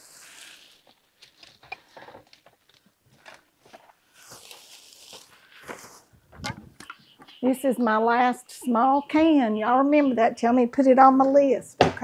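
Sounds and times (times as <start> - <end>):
vegetables sizzling in a skillet: 0.0 - 0.8.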